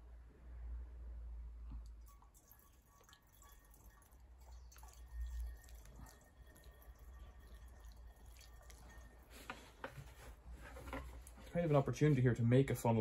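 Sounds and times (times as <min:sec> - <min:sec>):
petrol trickling through funnel: 0:01.8 - 0:12.0.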